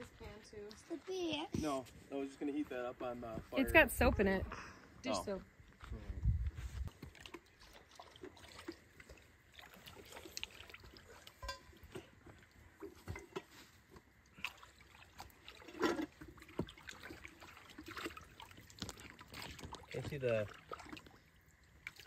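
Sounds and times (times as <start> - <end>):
water splashing and trickling: 0.0 - 4.4, 5.1 - 22.0
small knocks and clinks: 11.4 - 12.2, 12.8 - 13.6.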